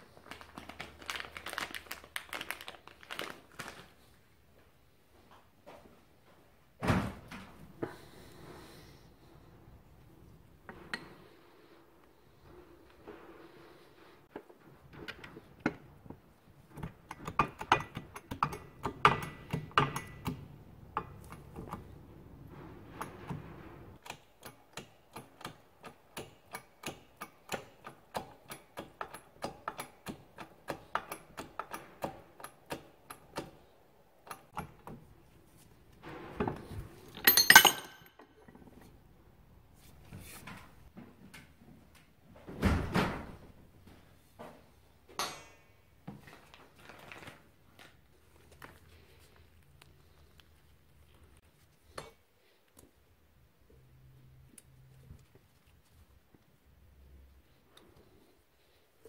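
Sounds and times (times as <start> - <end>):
metal parts clattering: 37.1 - 38.2.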